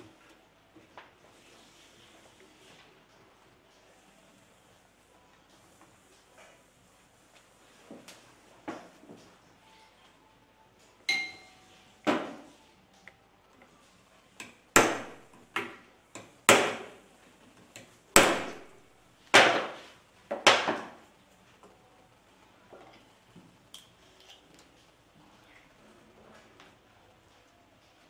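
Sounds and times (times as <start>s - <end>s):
hammer striking metal: 11.1s - 11.6s.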